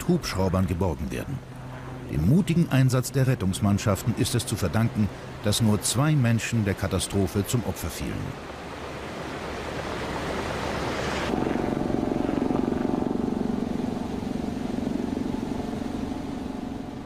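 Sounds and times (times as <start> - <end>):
rushing floodwater: 0.0 - 11.7
helicopter engine and rotor: 11.3 - 17.0.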